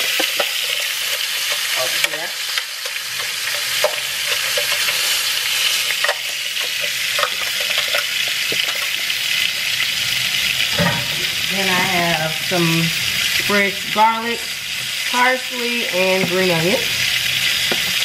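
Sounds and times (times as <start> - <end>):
onion sizzling in skillet: 0.0 - 18.0
utensils knocking: 10.7 - 12.0.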